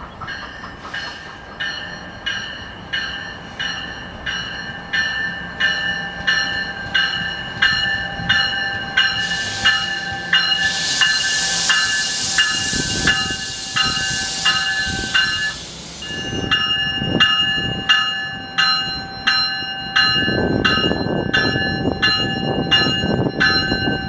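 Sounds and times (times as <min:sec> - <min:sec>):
train bell ringing: 0:00.0 - 0:24.0
high rushing hiss: 0:09.2 - 0:16.4.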